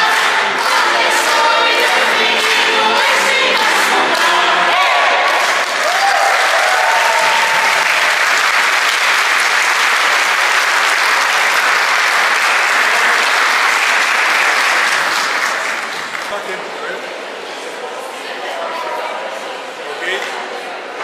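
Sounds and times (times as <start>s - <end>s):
choir holding a note: 0.0s - 5.6s
audience applauding: 0.0s - 16.7s.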